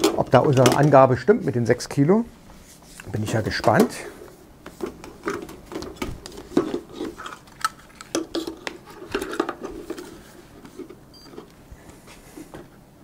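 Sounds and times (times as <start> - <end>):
cables and hose handled: 2.6 - 12.7.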